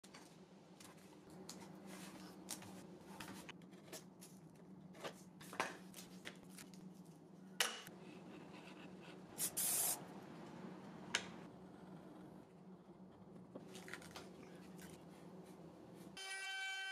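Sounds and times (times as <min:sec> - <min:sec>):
aerosol can hissing: 0:09.4 - 0:10.0.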